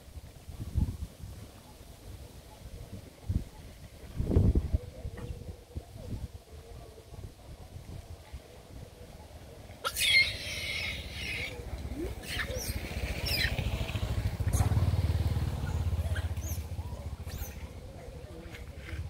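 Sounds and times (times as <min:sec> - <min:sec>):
low engine rumble: 0:10.8 - 0:19.0.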